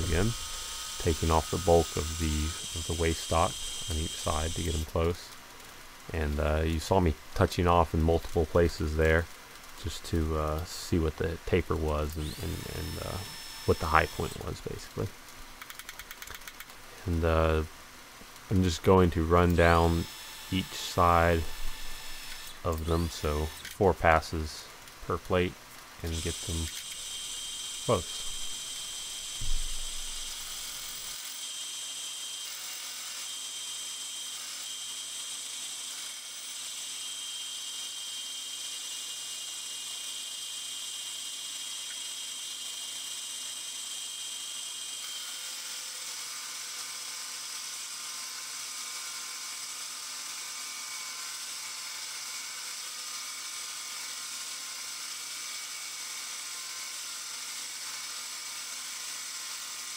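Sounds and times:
milling machine cutting steel: 0:00.0 - 0:05.2, 0:11.8 - 0:14.6, 0:26.0 - 0:47.1
short thump: 0:29.4 - 0:29.8.

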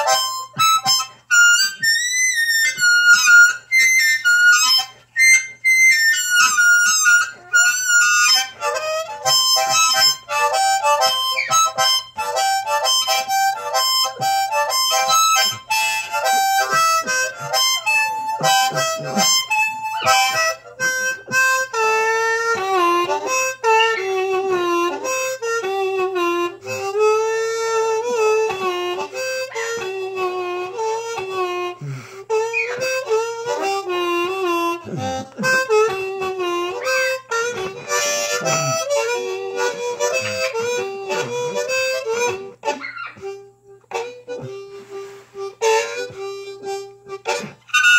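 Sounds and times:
solo blues harmonica: 0:00.0 - 0:47.9.

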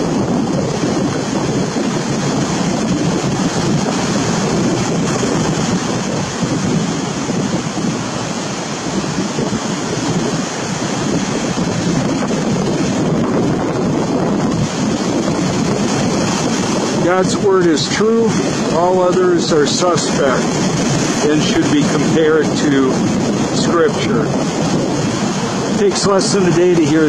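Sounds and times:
ocean surf rushing: 0:00.0 - 0:27.0
wind buffeting microphone: 0:00.0 - 0:27.0.

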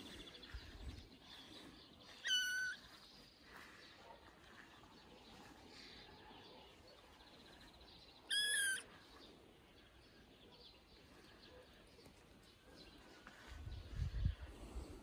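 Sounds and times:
kitten meowing: 0:02.2 - 0:02.8, 0:08.3 - 0:08.8.

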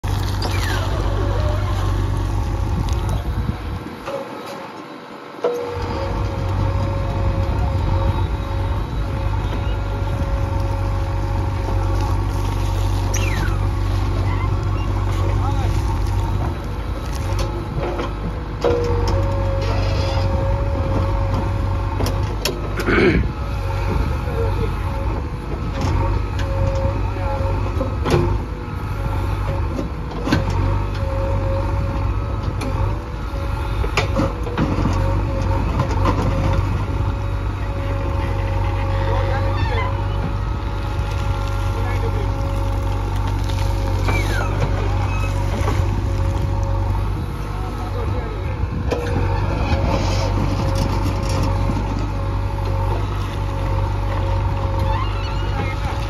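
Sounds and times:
diesel engine running hard: 0:00.0 - 0:56.0
falling squeal: 0:54.8 - 0:56.0.

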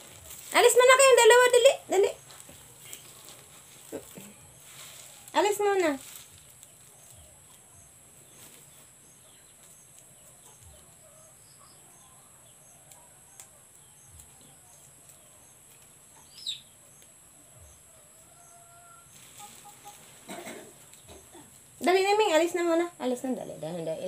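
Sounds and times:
faint bird chirps: 0:06.1 - 0:21.6.

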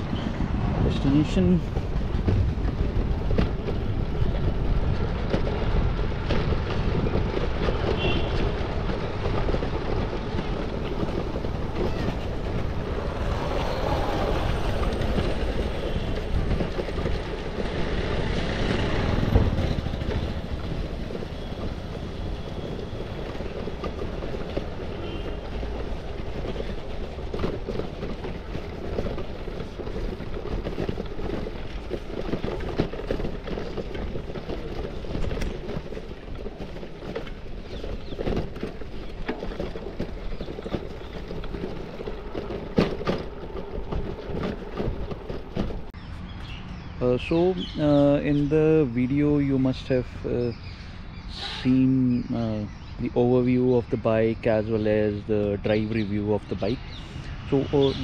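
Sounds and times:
bike tyres rattling on bricks: 0:00.0 - 0:46.0.

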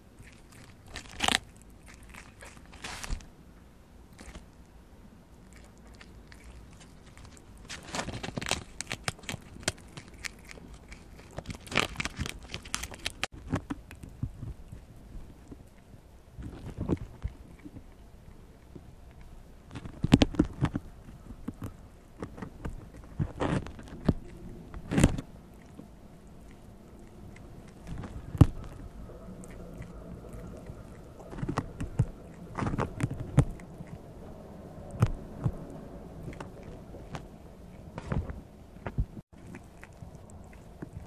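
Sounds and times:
animal tearing corn husk: 0:00.2 - 0:03.3, 0:05.5 - 0:14.1, 0:19.7 - 0:34.0.

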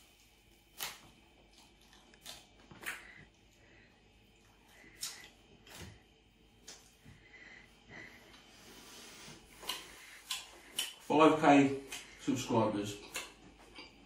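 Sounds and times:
man chewing: 0:00.0 - 0:11.1, 0:11.8 - 0:12.2, 0:12.9 - 0:14.0
mouth smacks and clicks: 0:01.6 - 0:03.2, 0:09.6 - 0:11.1, 0:11.8 - 0:12.2, 0:13.0 - 0:13.9
breathing through the nose: 0:07.0 - 0:11.1.

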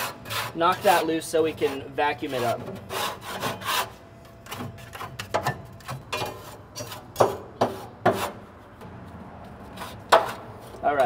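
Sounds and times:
hand scraper scraping metal floor: 0:00.0 - 0:05.2, 0:05.8 - 0:08.5.

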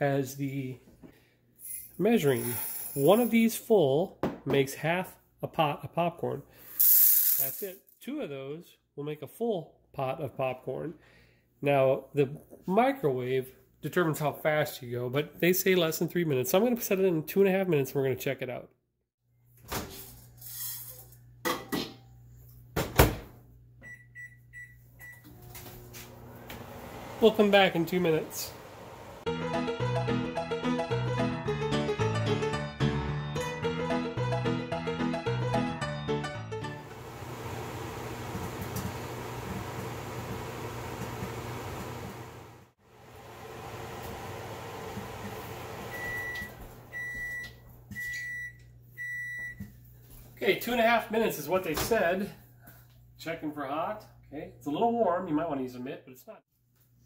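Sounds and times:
microwave high beeps: 0:23.8 - 0:25.4, 0:45.9 - 0:49.6
microwave oven humming: 0:23.8 - 0:29.3, 0:36.8 - 0:49.4.

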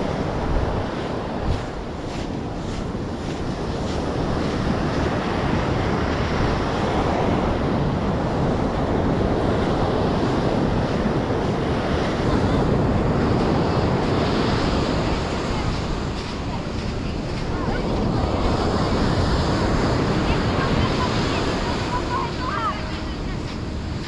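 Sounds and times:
surf washing onto beach: 0:00.0 - 0:24.0
wind buffeting microphone: 0:00.0 - 0:24.0.

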